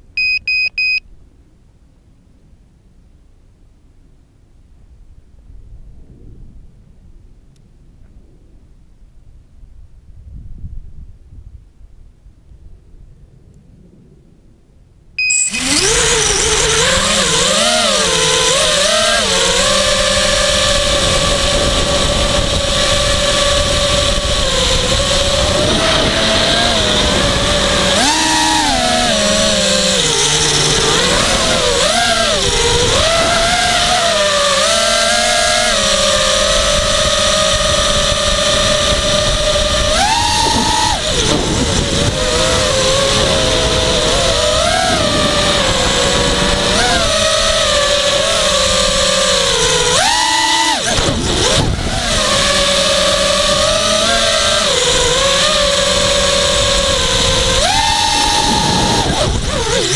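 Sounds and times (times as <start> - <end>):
quadcopter motors whining: 0.0 - 1.0, 15.2 - 59.9.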